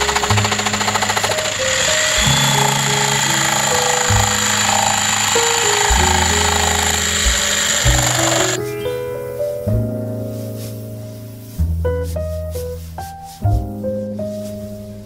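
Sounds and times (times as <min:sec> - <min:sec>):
jigsaw cutting plastic: 0:00.0 - 0:08.6
background music with bass: 0:00.0 - 0:15.0.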